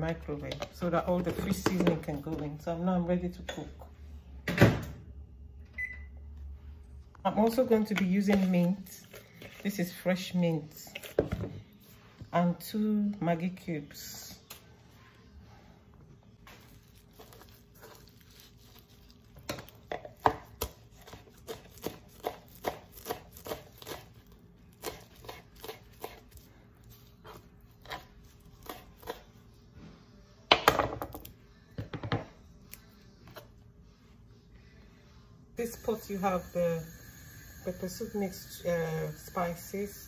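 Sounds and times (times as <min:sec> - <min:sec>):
knife chopping on cutting board: 0:20.1 - 0:24.1, 0:24.8 - 0:26.4, 0:28.6 - 0:29.2.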